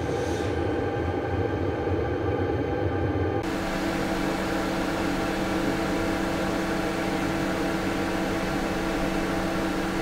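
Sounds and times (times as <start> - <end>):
heater blower fan humming: 3.4 - 10.0.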